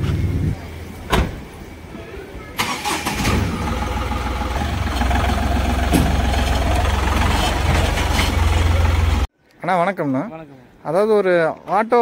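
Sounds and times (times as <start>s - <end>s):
truck engine starting and idling: 2.6s - 9.3s.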